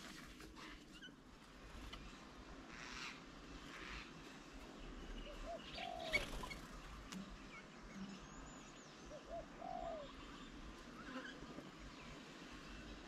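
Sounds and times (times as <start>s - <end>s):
small birds chirping: 0.6s - 13.0s
dove cooing: 5.3s - 6.6s, 9.1s - 10.2s.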